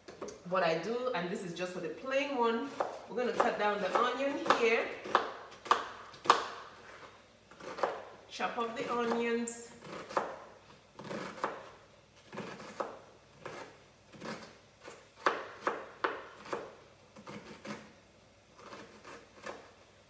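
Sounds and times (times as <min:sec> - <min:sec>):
knife chopping on cutting board: 0:02.7 - 0:08.1, 0:08.8 - 0:17.9.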